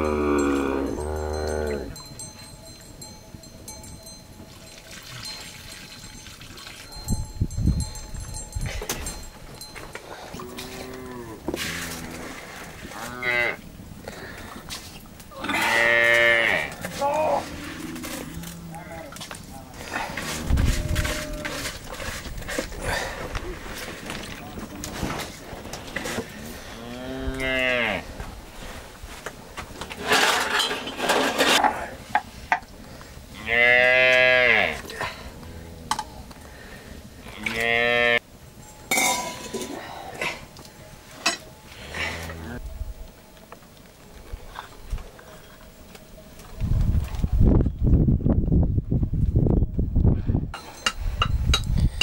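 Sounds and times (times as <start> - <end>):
cattle mooing: 0.0 - 2.0, 10.4 - 13.6, 15.4 - 19.2, 20.2 - 21.8, 37.3 - 38.2, 41.8 - 42.6
rustling noise: 6.8 - 15.3, 16.2 - 27.1, 28.0 - 31.6.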